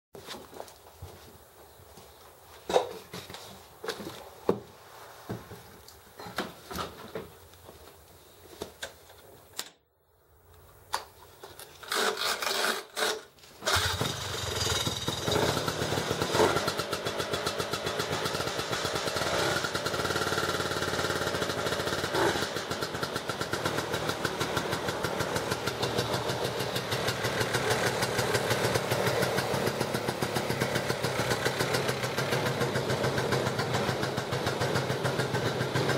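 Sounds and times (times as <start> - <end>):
engine cranking: 11.8 - 32.5
snowmobile engine idling and revving: 13.7 - 35.9.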